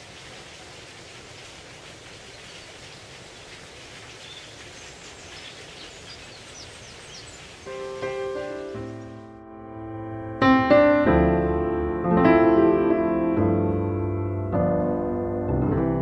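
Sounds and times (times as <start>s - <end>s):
steady rustling hiss: 0.0s - 9.4s.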